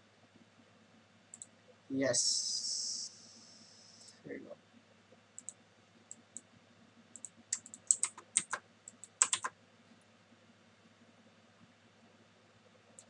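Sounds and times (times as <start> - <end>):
keyboard keys clicking: 7.2 - 9.5.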